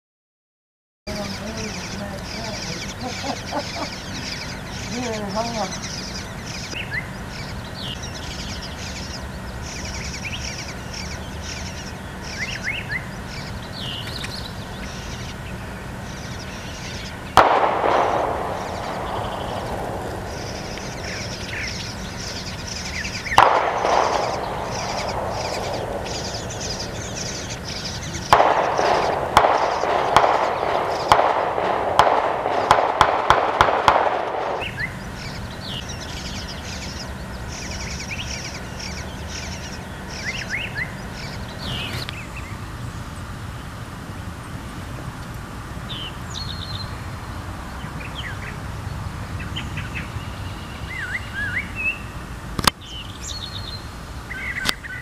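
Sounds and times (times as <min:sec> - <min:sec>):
small birds chirping: 0:01.1 - 0:55.0
sudden loud bursts: 0:17.3 - 0:34.9
rapid sharp knocks: 0:23.4 - 0:34.7.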